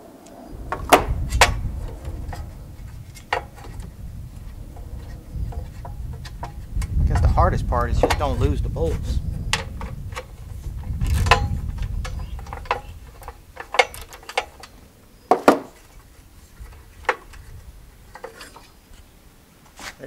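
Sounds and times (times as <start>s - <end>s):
low rumble: 0.0s - 18.1s.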